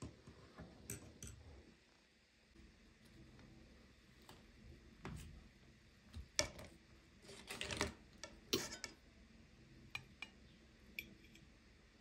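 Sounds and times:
cutlery scraping and clinking on plate: 8.5s - 9.0s.

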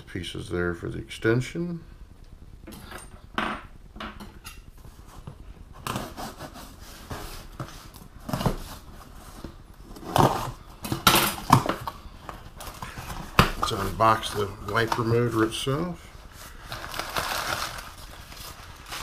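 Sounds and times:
cardboard scraping and rustling: 4.8s - 19.0s.

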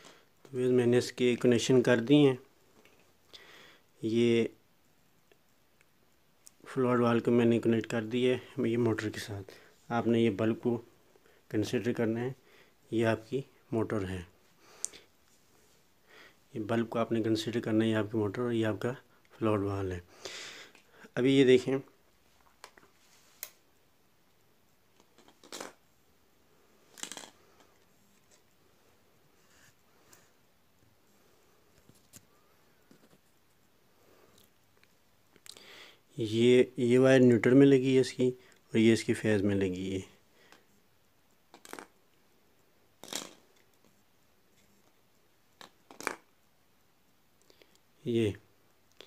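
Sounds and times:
cord rustling and scraping: 24.9s - 25.8s, 26.8s - 28.7s, 31.7s - 33.7s, 43.0s - 45.0s, 45.6s - 46.3s.

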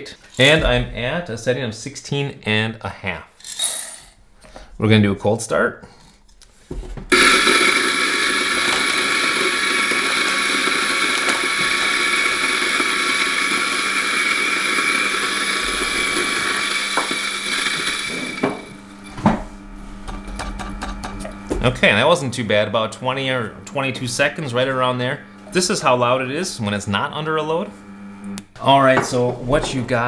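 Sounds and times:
coffee grinder whining: 7.1s - 21.9s, 24.0s - 28.4s.

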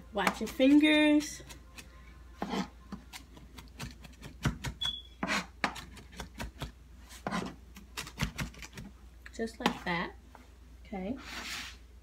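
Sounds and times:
knife chopping on cutting board: 3.6s - 8.6s.

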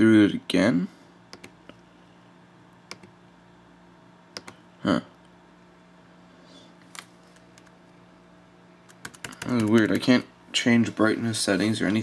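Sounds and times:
steady low hum: 0.0s - 12.0s
keyboard and trackpad clicks: 1.3s - 1.6s, 2.9s - 3.1s, 4.4s - 4.6s, 8.9s - 10.0s.

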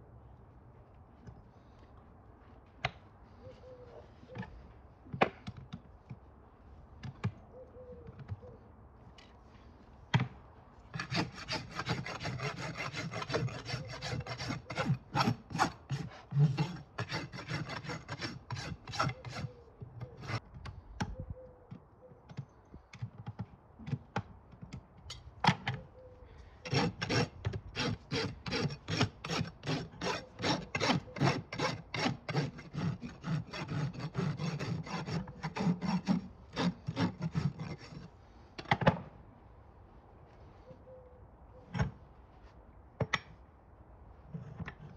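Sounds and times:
rasp scraping hoof: 10.9s - 20.4s, 26.6s - 38.2s.

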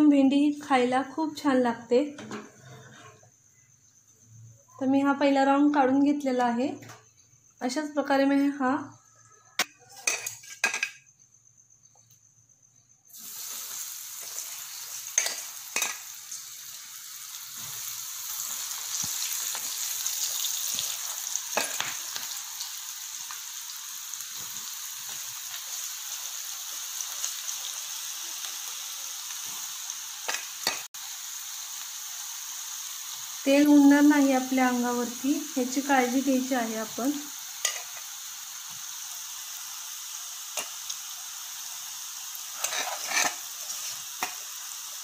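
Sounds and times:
food deep-frying in oil: 13.0s - 45.0s.

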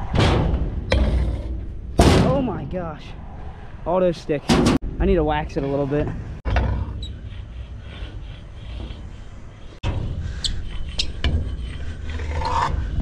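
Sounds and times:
wind rumble on microphone: 0.0s - 13.0s
wax scraping on metal rail: 6.5s - 13.0s.

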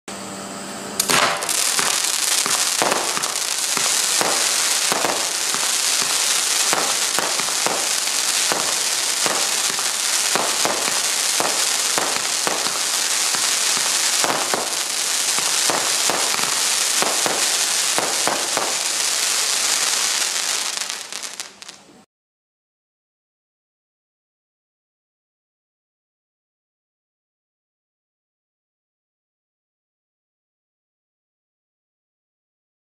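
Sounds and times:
firework crackling hiss: 1.0s - 22.0s
firework shots: 1.0s - 22.0s.

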